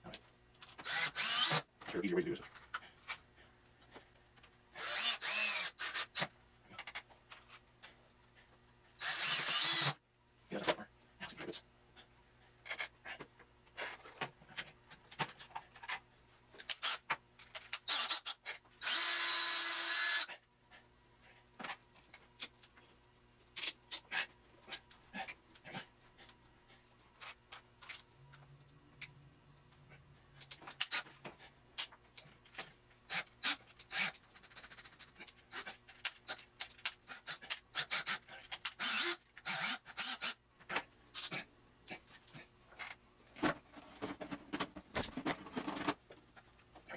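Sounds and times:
cordless drill running: 0.8s - 1.6s, 4.8s - 6.2s, 9.0s - 10.0s, 17.9s - 20.3s, 38.8s - 40.4s.

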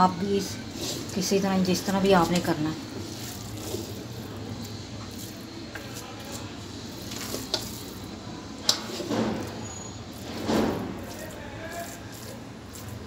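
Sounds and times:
spoon scraping a pan: 0.2s - 8.1s.

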